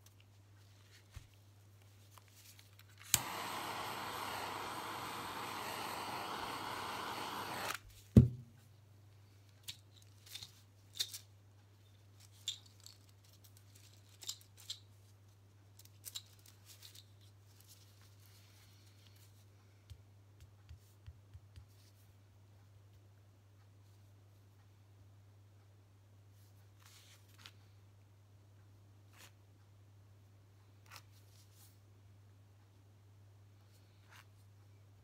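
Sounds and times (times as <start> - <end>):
heat gun blowing air: 3.1 - 7.8
heat gun switch click: 3.2 - 7.8.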